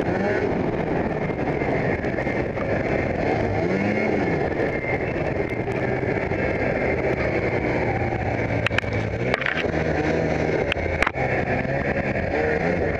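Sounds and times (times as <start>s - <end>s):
snowmobile engine running: 0.0s - 12.9s.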